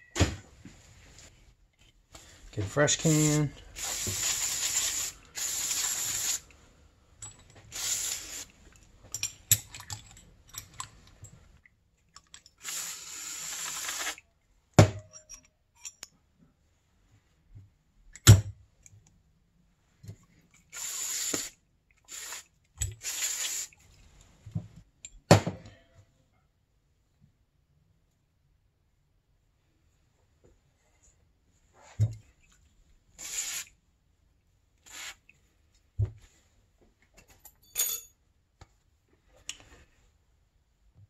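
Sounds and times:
aerosol spray hissing bursts: 0:03.0 - 0:06.4, 0:07.7 - 0:08.5, 0:12.6 - 0:14.2, 0:20.7 - 0:21.5, 0:22.1 - 0:23.8, 0:33.2 - 0:33.7, 0:34.9 - 0:35.2.

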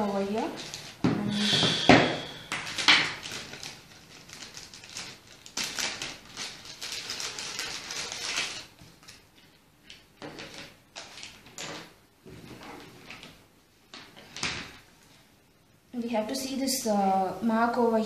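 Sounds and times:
plastic bag rustling: 0:00.0 - 0:13.4
cables handled on a tabletop: 0:06.8 - 0:15.0.

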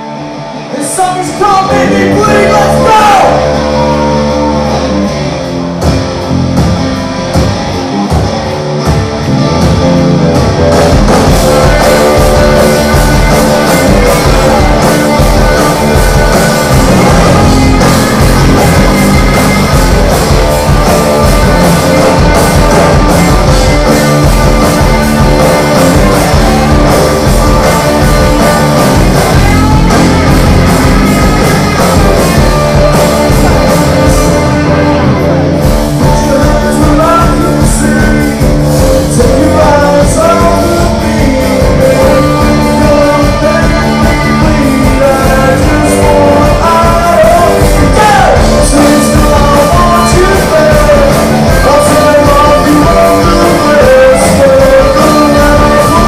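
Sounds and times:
bass: 0:00.0 - 0:56.0
distorted electric guitars: 0:00.0 - 0:56.0
drums: 0:00.0 - 0:56.0
person singing: 0:00.7 - 0:05.1, 0:31.4 - 0:56.0.

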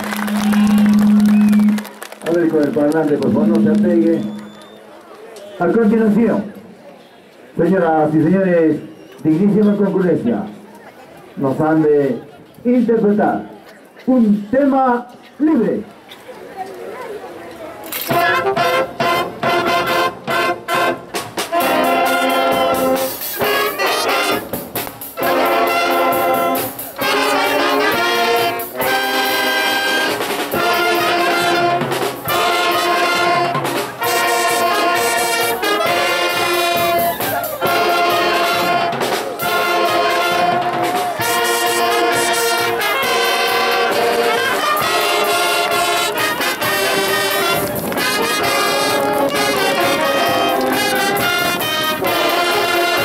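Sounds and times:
wind band playing: 0:00.0 - 0:05.0, 0:17.9 - 0:53.0.

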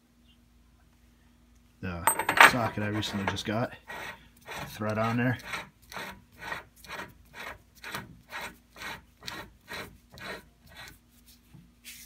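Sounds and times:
metal socket rasping on threads: 0:02.1 - 0:06.1.

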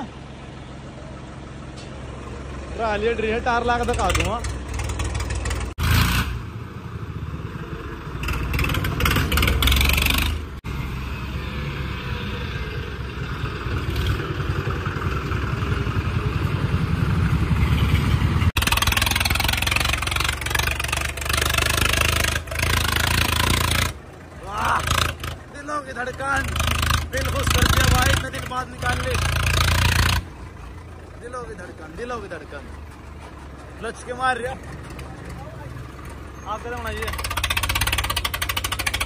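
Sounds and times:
tractor engines rumbling: 0:00.0 - 0:39.0.

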